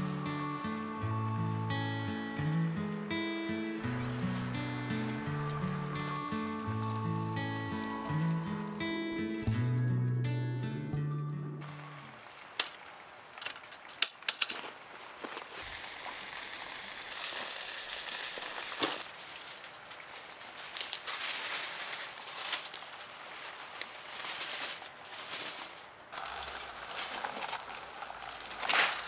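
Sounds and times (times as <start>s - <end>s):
aluminium foil crinkling: 13.9s - 29.0s.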